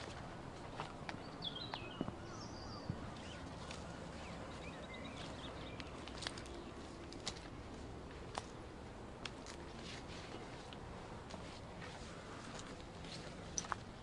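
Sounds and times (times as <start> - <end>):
small birds twittering: 0.0 - 7.3
footsteps on dirt path: 0.0 - 14.0
outdoor background noise: 0.0 - 14.0.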